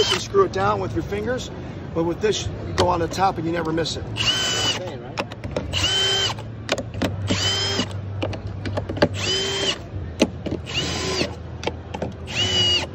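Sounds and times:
cordless drill whirring: 4.2 - 4.8, 5.7 - 6.4, 7.3 - 7.9, 9.2 - 9.8, 10.6 - 11.4, 12.3 - 12.9.

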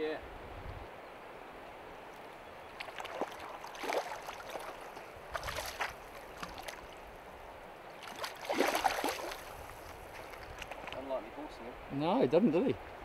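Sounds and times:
stream rushing: 0.0 - 13.0
fish splashing in water: 2.7 - 7.0, 8.0 - 10.9.

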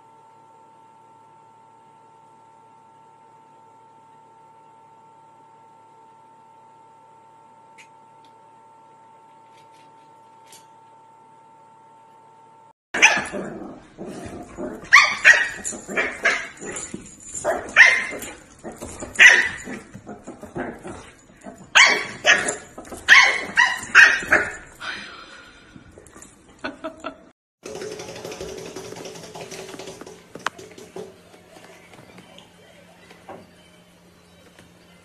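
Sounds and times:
dogs barking: 13.0 - 24.8.

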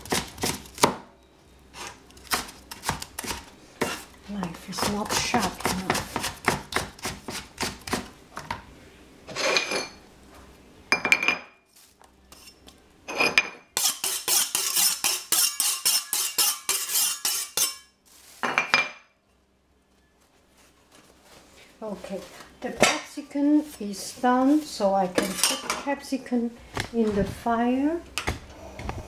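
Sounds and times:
knife chopping on cutting board: 4.8 - 8.1.

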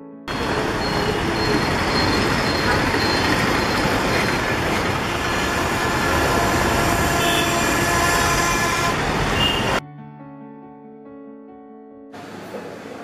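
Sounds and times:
busy street traffic: 0.3 - 9.8, 12.2 - 13.0.

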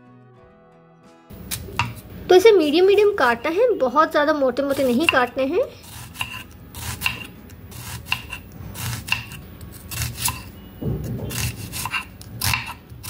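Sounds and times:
knife slicing onion on board: 1.4 - 3.0, 4.7 - 13.0.

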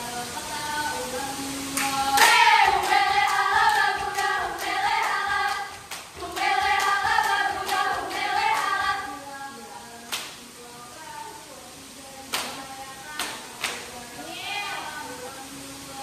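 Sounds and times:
women singing in unison: 0.0 - 16.0
hand claps: 1.7 - 9.1, 10.0 - 10.5, 12.3 - 14.2.

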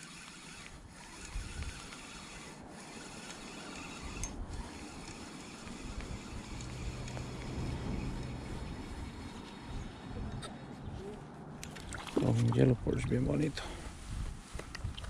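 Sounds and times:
fishing reel grinding: 0.0 - 10.2.

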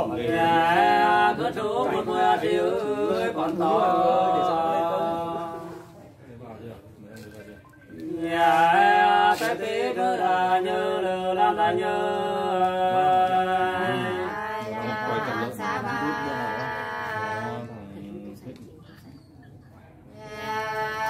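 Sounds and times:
person singing unaccompanied: 20.2 - 21.0.

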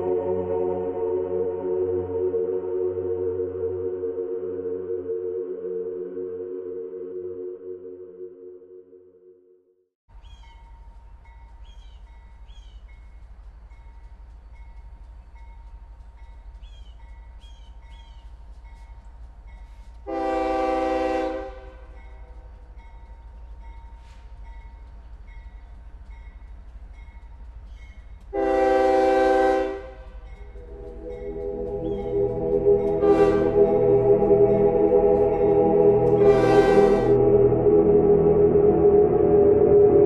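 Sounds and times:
train rumbling: 10.1 - 40.0
train horn blasts: 20.0 - 22.2, 28.3 - 37.7.

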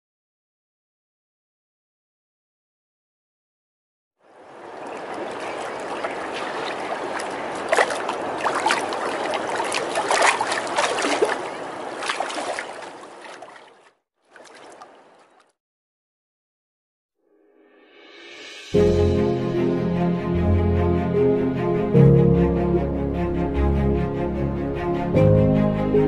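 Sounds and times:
rushing river water: 4.2 - 15.4
water splashes: 4.3 - 15.6.

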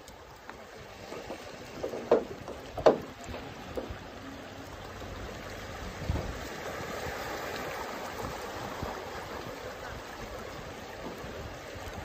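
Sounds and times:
waves lapping on rocks: 0.0 - 12.0
water slaps: 1.0 - 4.0.

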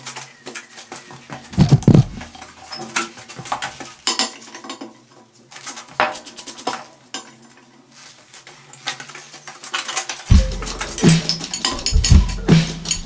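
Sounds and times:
music with drum beat: 1.6 - 2.3, 10.3 - 13.0
steel pieces clinking: 9.7 - 13.0.

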